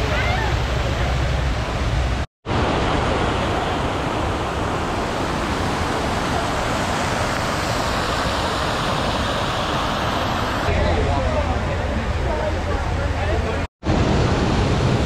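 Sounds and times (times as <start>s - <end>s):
fountain water splashing: 0.0s - 15.0s.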